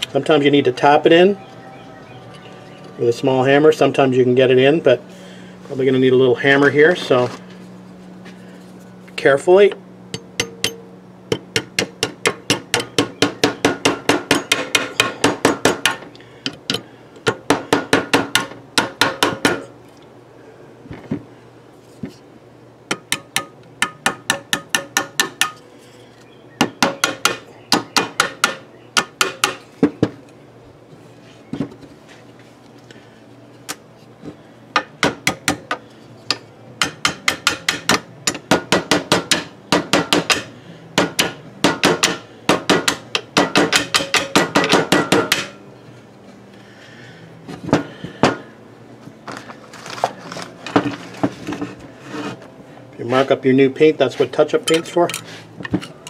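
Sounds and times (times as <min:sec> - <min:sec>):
small hammer tapping metal: 0:10.1 - 0:17.4, 0:22.9 - 0:25.6.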